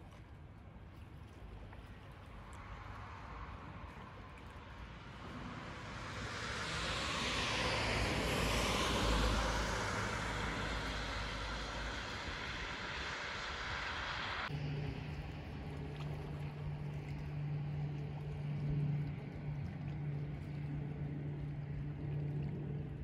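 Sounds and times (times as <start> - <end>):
vehicle passing: 5.1 - 14.8.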